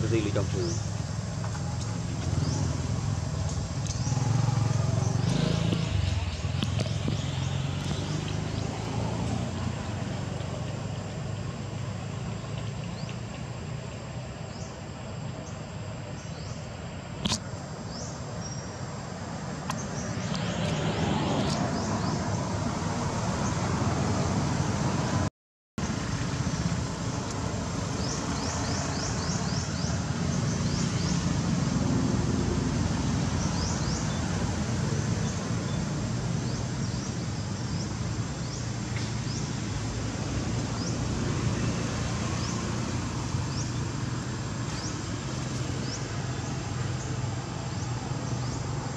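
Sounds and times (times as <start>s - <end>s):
sharp click: 17.2s - 17.5s.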